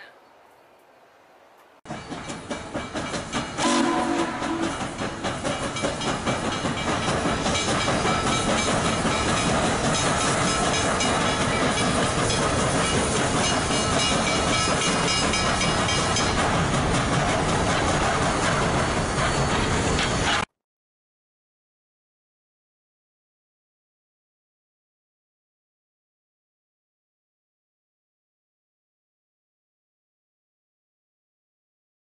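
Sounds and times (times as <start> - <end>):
train rumbling and clattering past: 1.8 - 20.5
steam locomotive whistle: 3.6 - 5.0.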